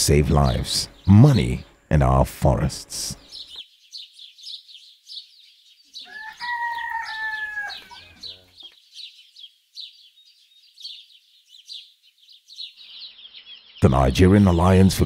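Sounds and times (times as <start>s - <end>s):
rooster crowing: 6.0s - 8.3s.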